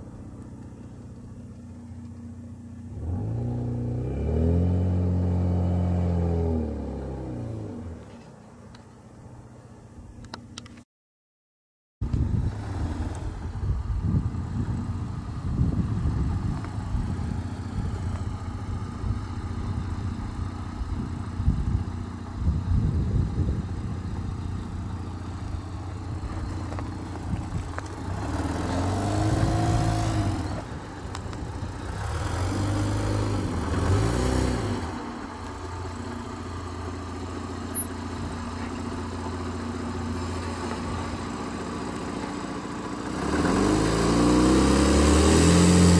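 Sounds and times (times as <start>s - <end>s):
truck engine at low speed: 0.0s - 10.8s, 12.0s - 45.9s
engine revving: 2.9s - 8.0s, 27.8s - 30.8s, 31.7s - 35.2s, 43.0s - 45.9s.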